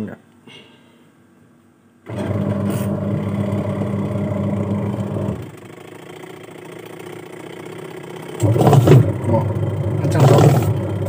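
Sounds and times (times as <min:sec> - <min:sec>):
quiet whir: 0:01.4 - 0:05.8, 0:08.0 - 0:11.0
washing machine motor humming: 0:02.0 - 0:06.6, 0:07.2 - 0:11.0.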